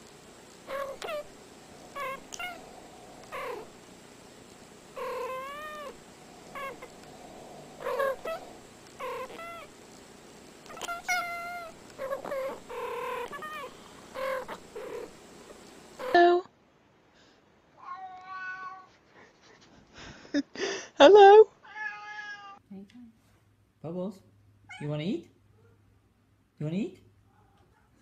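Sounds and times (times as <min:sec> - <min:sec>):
cats chirping meows: 0:00.7 - 0:03.8, 0:04.9 - 0:09.8, 0:10.6 - 0:15.2, 0:17.8 - 0:18.9.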